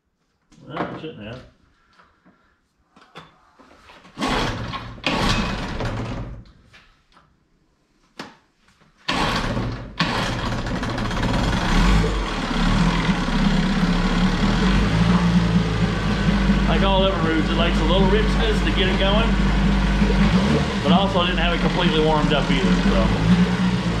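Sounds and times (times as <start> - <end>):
outboard motor starting and running: 4.2 - 6.1, 9.1 - 24.0.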